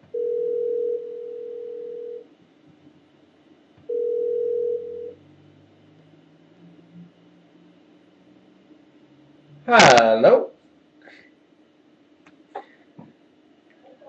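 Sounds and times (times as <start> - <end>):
single-pitched ring tone beep: 0.1 - 2.2, 3.9 - 5.2.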